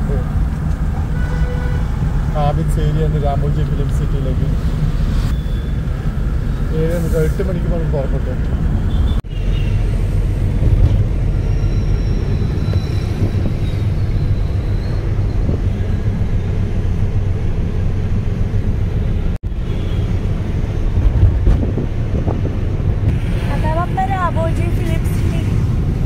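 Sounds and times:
vehicle engine and road rumble: 0.0s - 26.0s
wind buffeting microphone: 20.4s - 26.0s.

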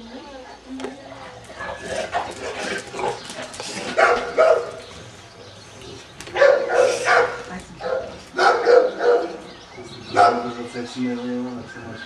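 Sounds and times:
dogs barking: 1.5s - 5.2s, 6.2s - 11.0s.

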